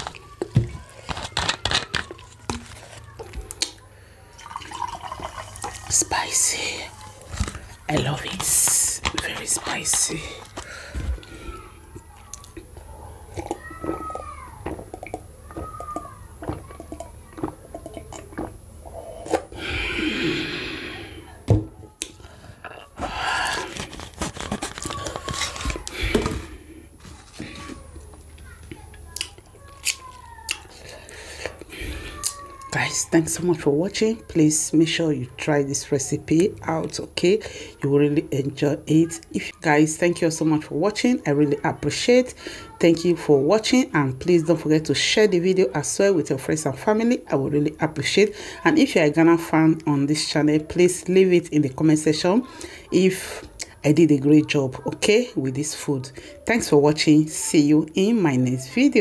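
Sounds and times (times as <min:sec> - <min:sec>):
plastic bottle crackling: 0:00.0 - 0:03.8, 0:22.9 - 0:27.8
cola pouring into glass mug: 0:04.3 - 0:06.9, 0:13.3 - 0:19.5.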